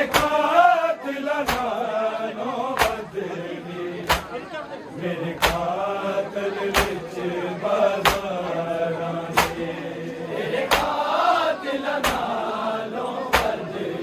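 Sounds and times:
people beating chests in unison: 0.0 - 0.5, 1.4 - 1.8, 2.7 - 3.1, 4.0 - 4.4, 5.4 - 5.8, 6.7 - 7.1, 8.0 - 8.4, 9.3 - 9.8, 10.6 - 11.0, 12.0 - 12.4, 13.2 - 13.7
voices chanting: 0.0 - 14.0.

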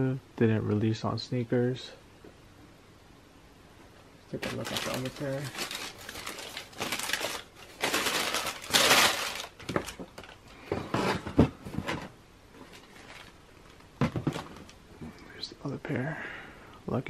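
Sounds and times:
tissue paper rustling: 4.4 - 10.4, 12.6 - 13.8.

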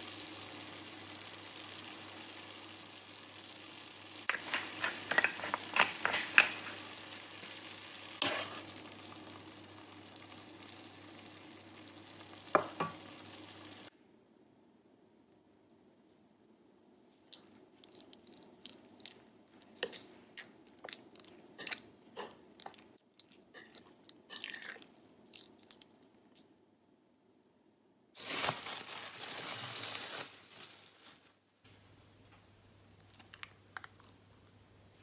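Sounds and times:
spoon stirring sticky sauce: 4.3 - 6.8, 17.3 - 26.2.

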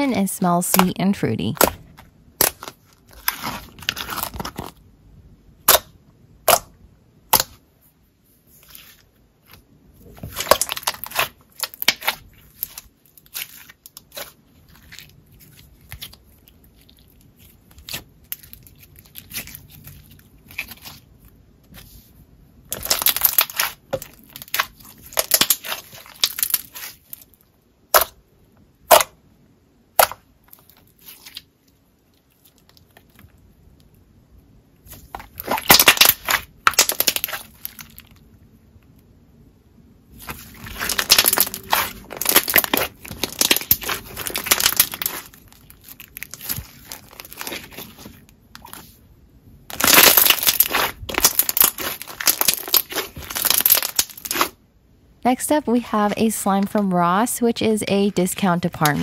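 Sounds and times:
slime squelching: 0.0 - 4.8, 8.5 - 28.2, 29.9 - 33.3, 34.8 - 38.2, 40.1 - 54.6.

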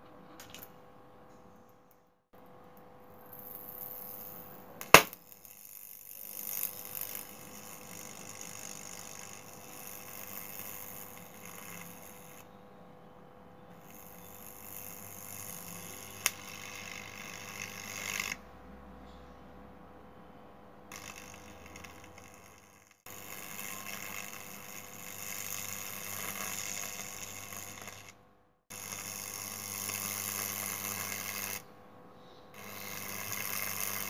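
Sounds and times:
sharp electrical crack: 4.8 - 5.6.

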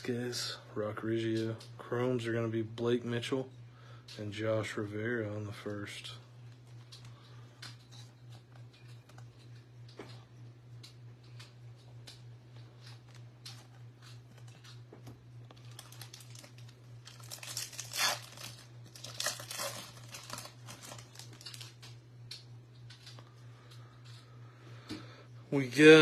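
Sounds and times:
foil wrapper crinkling and tearing: 15.4 - 22.0.

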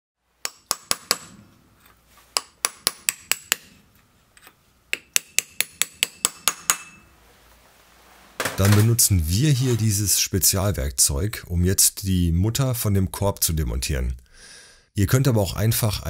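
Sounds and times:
hammer tapping metal punch: 2.3 - 3.8, 4.4 - 7.1.

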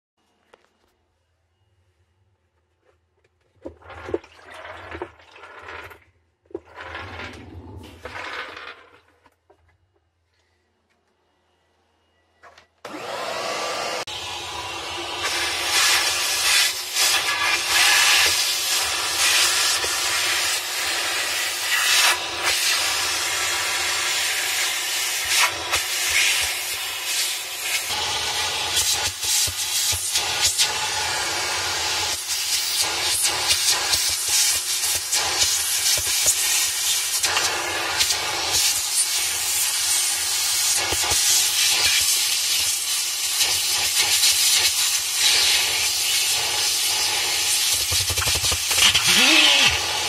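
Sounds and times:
vacuum cleaner rushing hiss: 12.9 - 50.0.

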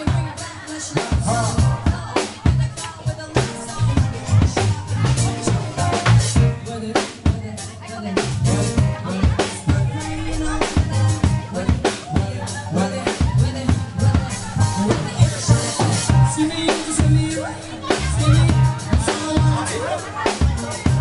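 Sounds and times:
bass notes: 0.0 - 0.4, 1.2 - 7.5, 8.2 - 21.0
drum kit beat: 0.0 - 21.0
keyboard: 0.0 - 21.0.

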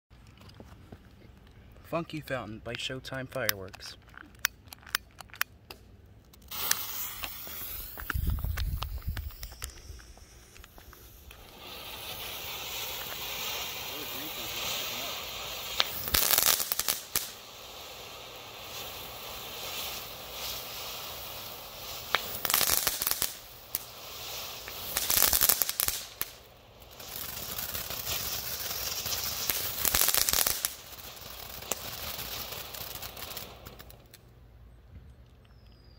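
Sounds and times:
firework crackling: 6.3 - 34.4
firework fountain hissing: 6.4 - 34.3.

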